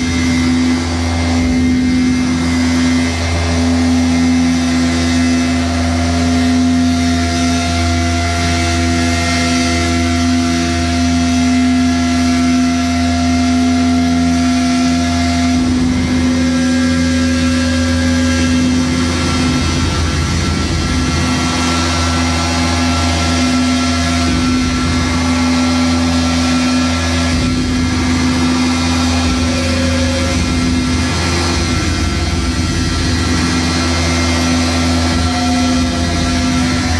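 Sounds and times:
harsh droning noise music: 0.0s - 36.9s
held drone tone: 0.0s - 36.9s
steady low hum: 0.0s - 36.9s.

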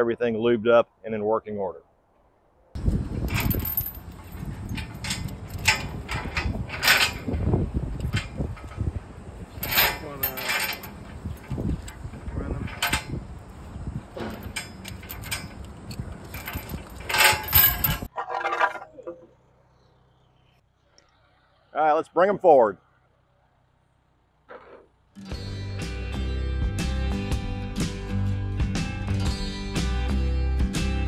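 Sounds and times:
metallic clanks and squeaks: 3.1s - 19.2s.

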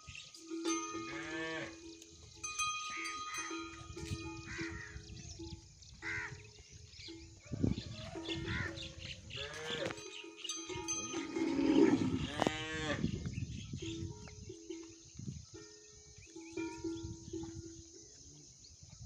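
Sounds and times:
cattle mooing: 1.1s - 1.8s, 9.4s - 10.0s, 11.1s - 13.1s.

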